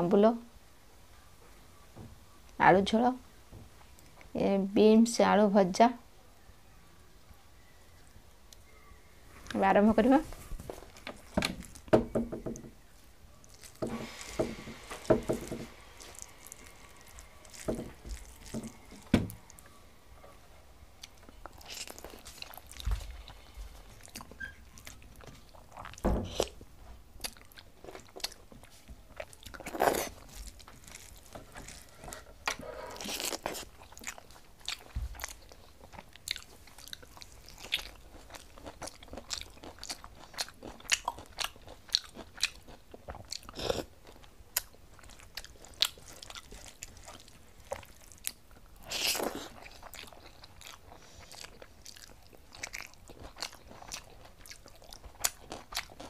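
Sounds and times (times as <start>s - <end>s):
person chewing: 13.4s - 19.8s, 20.9s - 56.0s.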